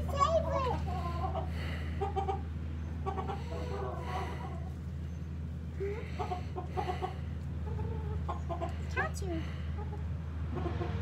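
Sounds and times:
hens clucking: 0.0 - 11.0.

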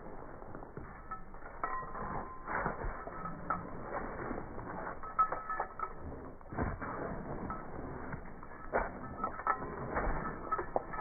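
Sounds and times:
dog collar tags clinking: 0.9 - 6.5, 8.4 - 11.0.

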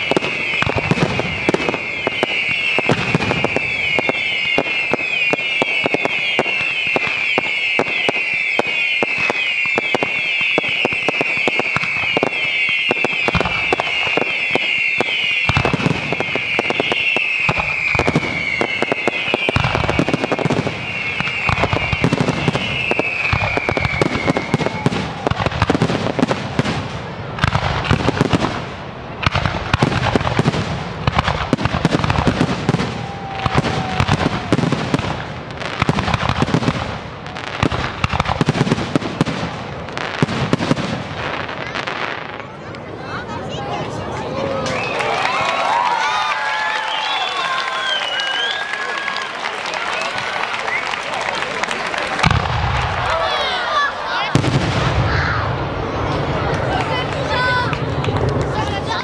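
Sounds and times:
falling firework whistles: 0.0 - 26.4, 31.1 - 36.8, 44.5 - 51.4
fireworks bursting with crackling: 0.0 - 59.0.

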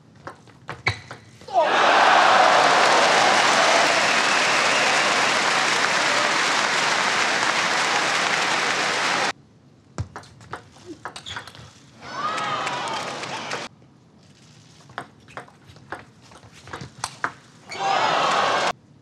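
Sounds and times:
crowd applauding and cheering: 1.6 - 9.3, 12.0 - 13.7, 17.8 - 18.7.

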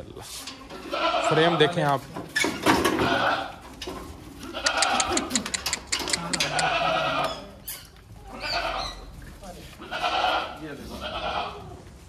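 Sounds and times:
goats bleating: 0.8 - 1.9, 2.9 - 3.6, 4.4 - 5.5, 6.1 - 7.6, 8.2 - 9.1, 9.8 - 11.8.

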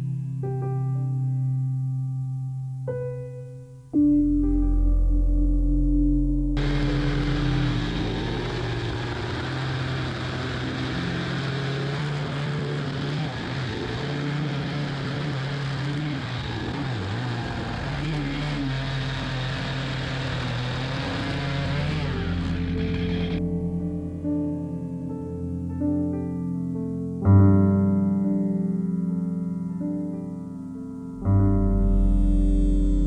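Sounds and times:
chainsaw cutting wood: 6.6 - 23.4.

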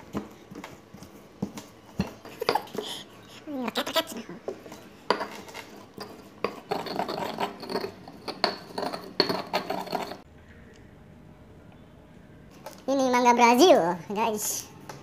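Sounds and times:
pestle grinding in stone mortar: 0.0 - 10.3
stone knocking on stone: 5.1 - 10.2.

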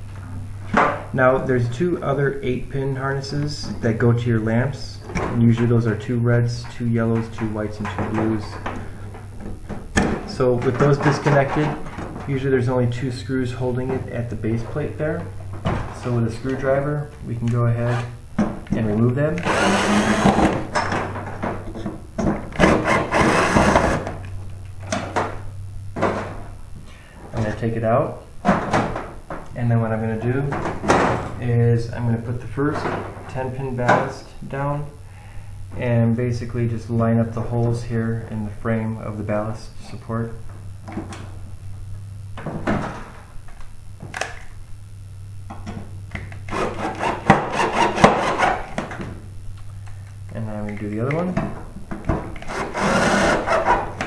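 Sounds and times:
drill driving screw into metal: 19.4 - 20.6, 22.6 - 24.0, 52.5 - 53.7.

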